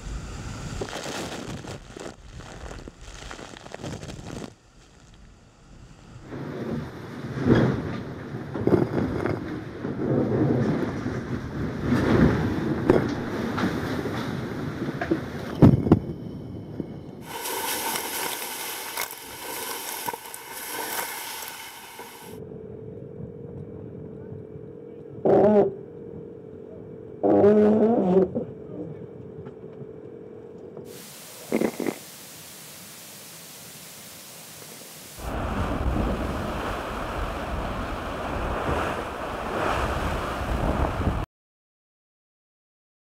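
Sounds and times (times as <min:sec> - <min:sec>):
steady hum: 0:00.0 - 0:07.4, 0:30.0 - 0:38.4
sea waves breaking: 0:17.2 - 0:22.4, 0:30.9 - 0:41.2
seawater sweeping across deck: 0:17.2 - 0:22.4, 0:30.9 - 0:41.2
wind buffeting microphone: 0:35.2 - 0:41.2.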